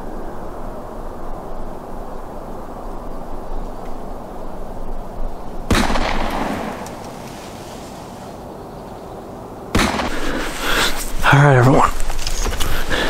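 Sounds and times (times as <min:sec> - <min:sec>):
distant rifle shot with echo: 0:05.7 - 0:07.1, 0:09.7 - 0:10.6.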